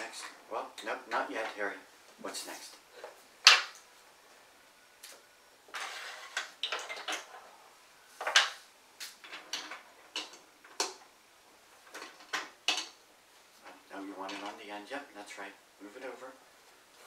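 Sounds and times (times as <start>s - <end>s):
plastic bricks clicking together: 6.2s - 7.4s.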